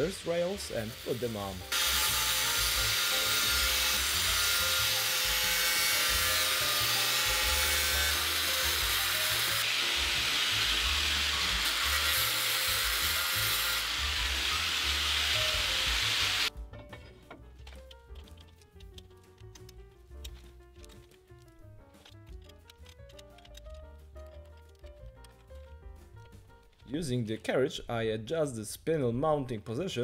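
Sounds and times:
cut-off disc grinding steel: 1.7s - 16.5s.

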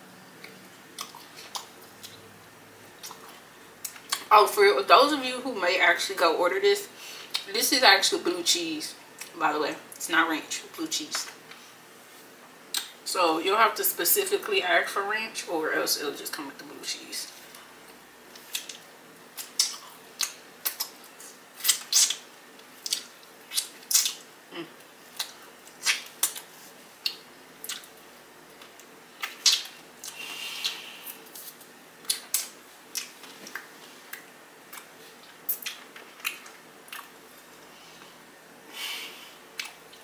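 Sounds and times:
chewing and lip smacks: 0.4s - 2.3s, 3.0s - 4.3s, 18.3s - 18.8s, 19.4s - 37.2s, 39.5s - 40.0s.

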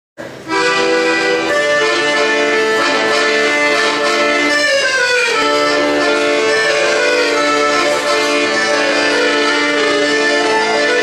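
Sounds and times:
piano accordion playing chords: 0.2s - 11.0s.

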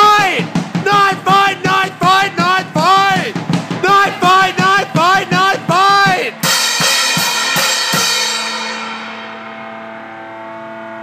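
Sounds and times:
rock drum hits: 0.0s - 9.6s
crashing cymbals: 6.4s - 10.3s
amplified bass note ringing: 6.4s - 11.0s.

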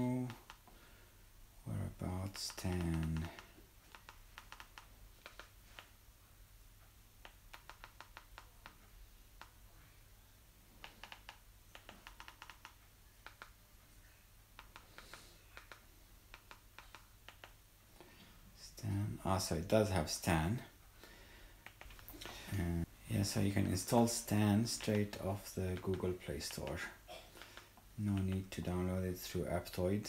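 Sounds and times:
remote control buttons clicking: 0.2s - 0.8s, 2.2s - 6.0s, 7.2s - 9.6s, 10.8s - 13.6s, 14.5s - 17.6s, 21.6s - 22.3s, 23.8s - 26.8s, 27.4s - 28.7s.

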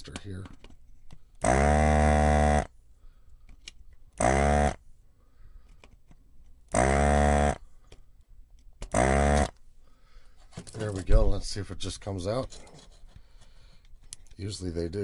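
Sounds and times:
desoldering pump buzzing: 1.4s - 2.7s, 4.2s - 4.8s, 6.7s - 7.6s, 8.9s - 9.5s.

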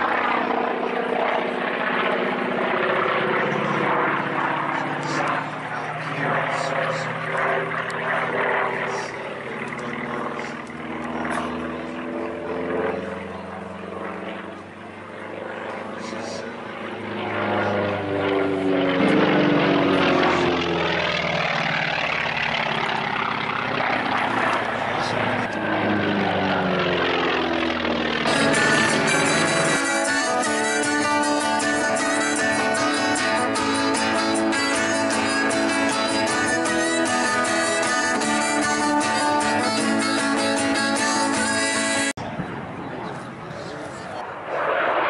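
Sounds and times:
propeller aircraft engine: 0.0s - 45.0s
harmonica holding notes: 28.2s - 42.1s
acoustic guitar strumming: 28.3s - 42.1s.

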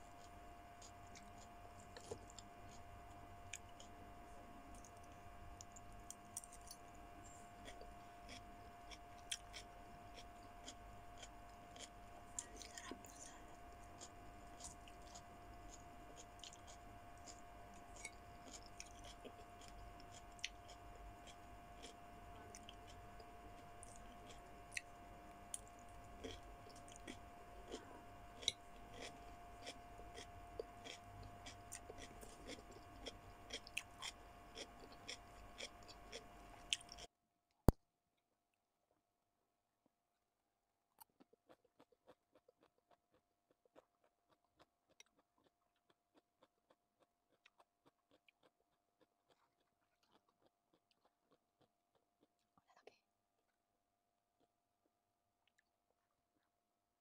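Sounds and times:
faint steady hum: 0.0s - 37.1s
person chewing food: 0.0s - 37.1s, 40.9s - 52.7s.

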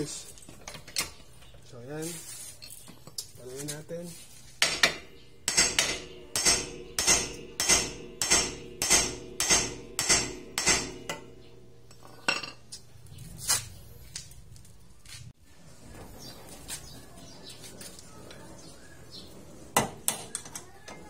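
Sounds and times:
hammer striking metal: 4.6s - 11.6s.

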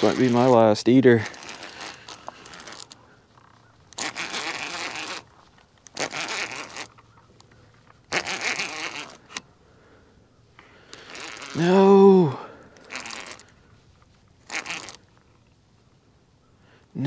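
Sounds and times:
fishing reel rattling whir: 0.0s - 3.0s, 3.9s - 7.1s, 8.1s - 9.4s, 10.8s - 13.6s, 14.4s - 15.0s.

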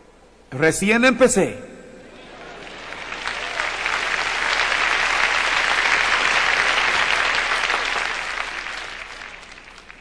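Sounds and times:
crowd applauding: 2.2s - 10.0s.

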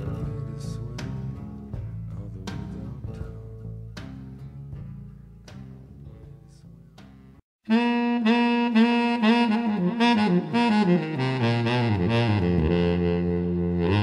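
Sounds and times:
background music: 0.0s - 7.4s
saxophone-led tune: 7.6s - 14.0s.

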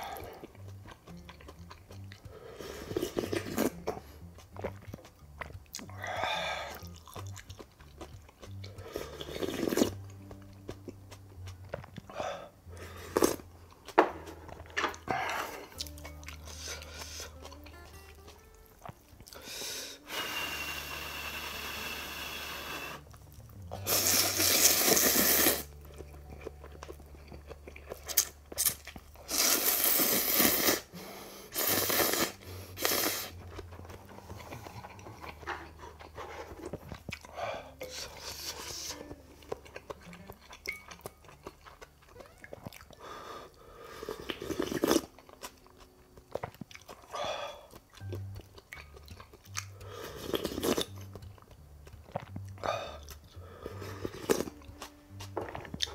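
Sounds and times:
chewing: 0.0s - 19.5s, 23.0s - 30.8s, 31.7s - 55.9s
soft background music: 0.0s - 55.9s
loud noodle slurps: 23.8s - 25.7s, 28.6s - 30.9s, 31.5s - 33.4s.

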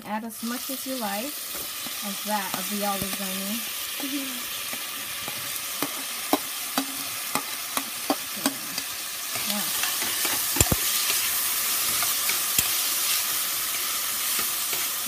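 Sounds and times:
vegetables sizzling in oil: 0.0s - 15.0s
utensil clicking against pan: 4.7s - 12.9s.

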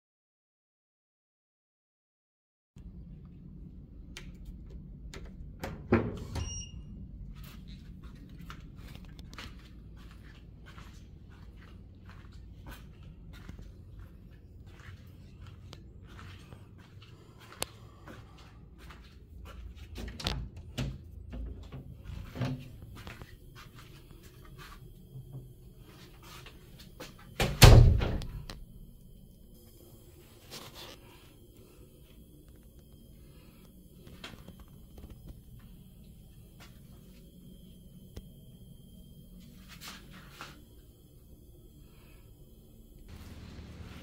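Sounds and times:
low steady hum: 2.8s - 44.0s
door banging shut: 27.4s - 28.4s.

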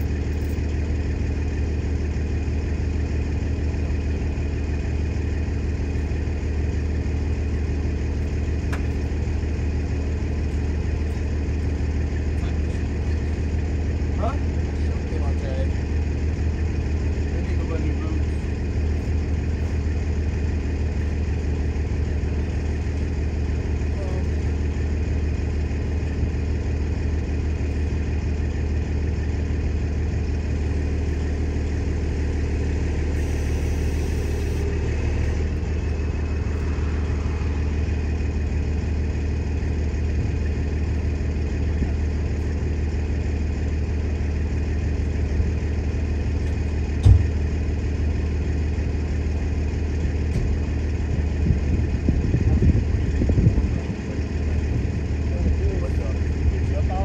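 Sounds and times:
diesel engine droning: 0.0s - 57.0s
sharp thump: 47.0s - 47.4s.

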